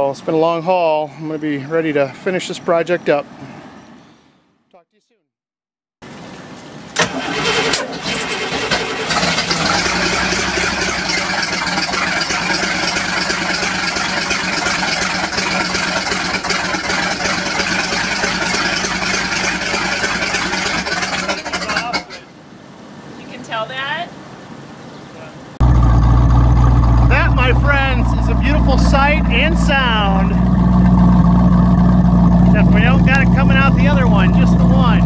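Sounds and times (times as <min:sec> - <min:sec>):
boat engine cranking and running: 0:07.0 - 0:22.2, 0:25.6 - 0:35.0.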